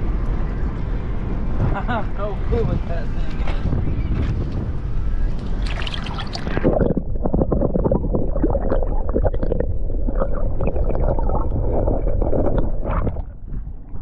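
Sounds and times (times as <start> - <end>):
water splashing: 5.4 - 14.0
underwater river gurgling: 5.6 - 14.0.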